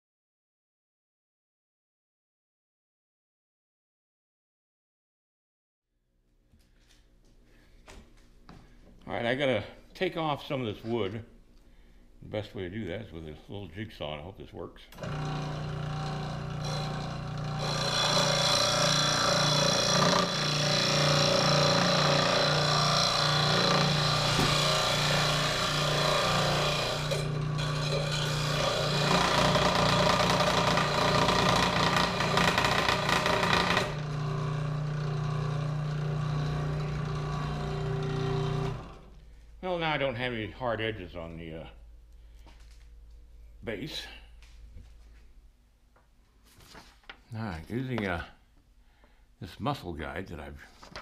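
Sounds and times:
saw blade rasping through wood: 0:15.0 - 0:39.0
scroll saw motor hum: 0:15.0 - 0:39.2.

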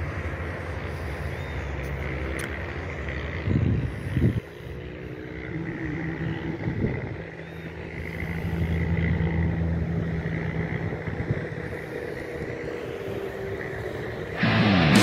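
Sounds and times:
distant propeller plane engine drone: 0:00.0 - 0:15.0.

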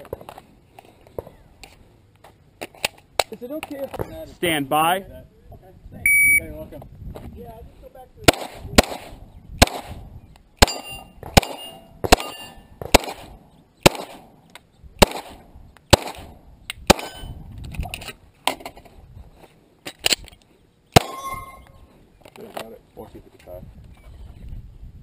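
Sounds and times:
pistol shots: 0:08.2 - 0:10.0, 0:10.6 - 0:14.3, 0:15.0 - 0:17.3
steel targets ringing: 0:10.6 - 0:12.7, 0:21.0 - 0:21.8.

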